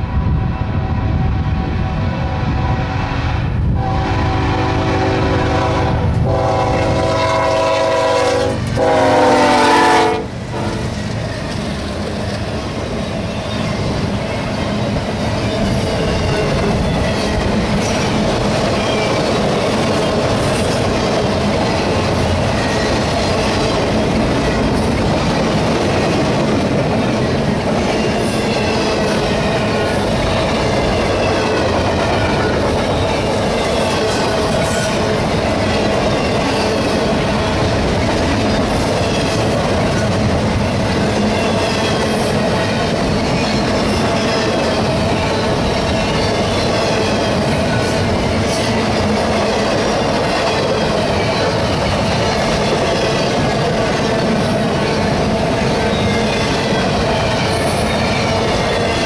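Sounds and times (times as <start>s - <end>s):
train cars rumbling: 0.0s - 59.0s
locomotive air horn blasts: 3.8s - 10.9s.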